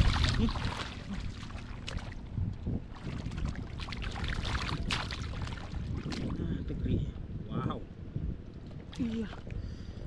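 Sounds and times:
muddy water splashing: 0:00.0 - 0:06.4
steady low rumble: 0:00.0 - 0:10.0.

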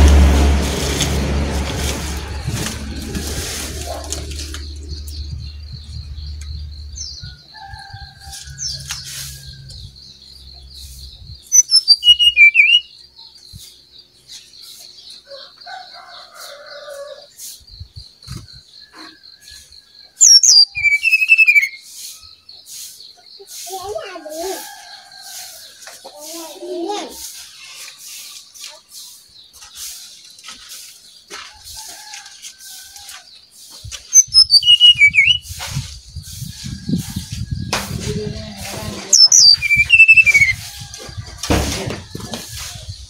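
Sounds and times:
bird singing rapid high notes: 0:10.9 - 0:13.0, 0:20.2 - 0:21.9, 0:34.2 - 0:35.5, 0:39.1 - 0:40.6.

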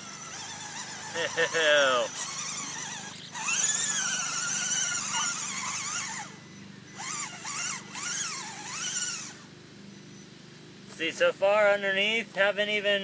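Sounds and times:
electric motor whining: 0:00.0 - 0:10.3.

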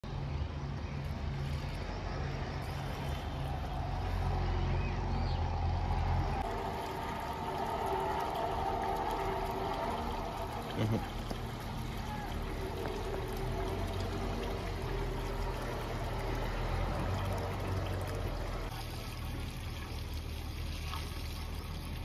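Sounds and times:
low motor hum: 0:00.0 - 0:22.0
hose water running into soil: 0:06.4 - 0:22.0.

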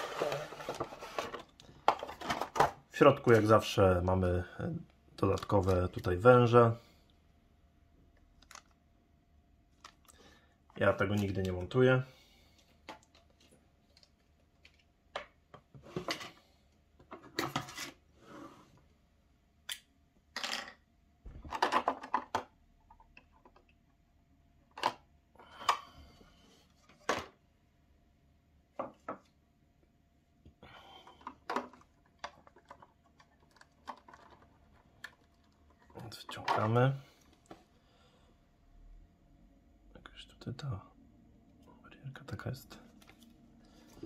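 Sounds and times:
plastic packaging clicks and crackles: 0:08.2 - 0:08.8.

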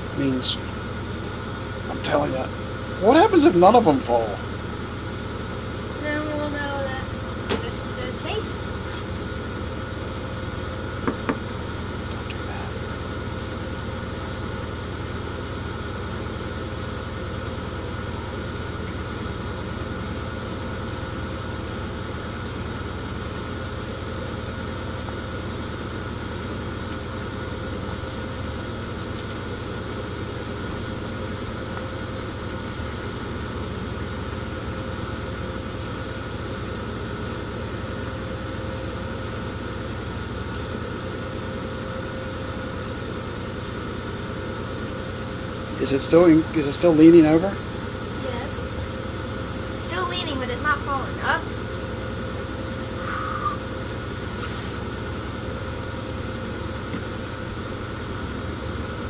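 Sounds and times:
machine motor humming: 0:00.0 - 0:34.7.

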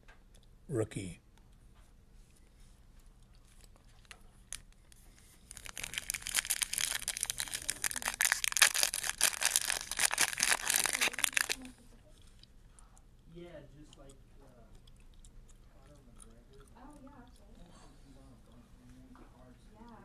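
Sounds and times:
foil wrapper crinkling and tearing: 0:04.0 - 0:11.7.

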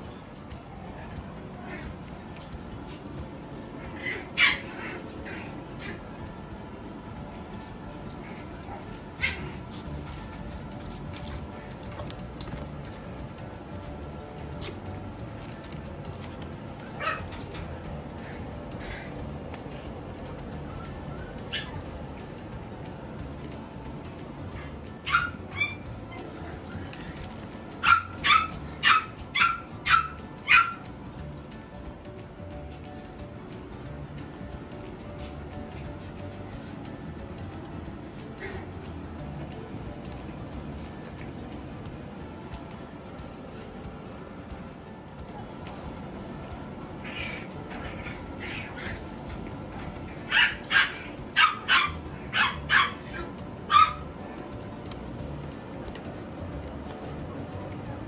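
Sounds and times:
puppy yapping: 0:03.9 - 0:06.0, 0:08.3 - 0:09.6, 0:17.0 - 0:17.4, 0:21.5 - 0:21.8, 0:24.6 - 0:26.3, 0:27.8 - 0:30.8, 0:47.0 - 0:49.0, 0:50.1 - 0:54.0.

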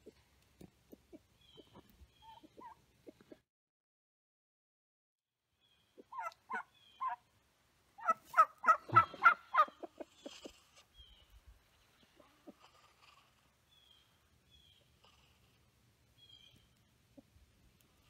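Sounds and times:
turkey gobbling: 0:00.9 - 0:03.4, 0:06.0 - 0:07.2, 0:08.0 - 0:10.6.

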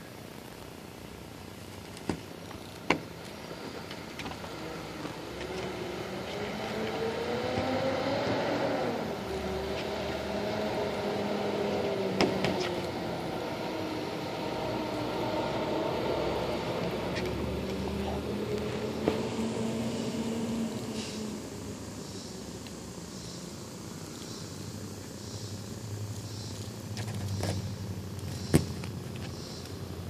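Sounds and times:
engine running: 0:02.4 - 0:24.0.

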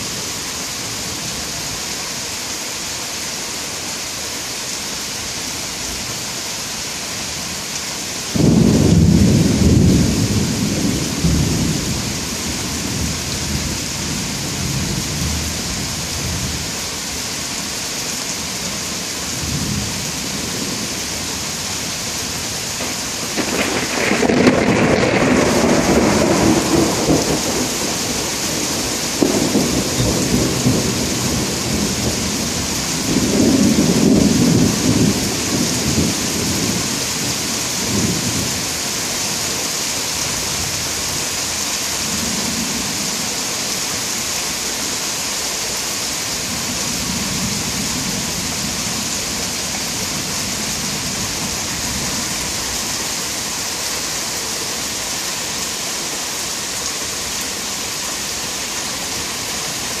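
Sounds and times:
steady rain hiss: 0:00.0 - 1:00.0
thunder rumbling: 0:08.4 - 0:15.5, 0:22.8 - 0:38.6.

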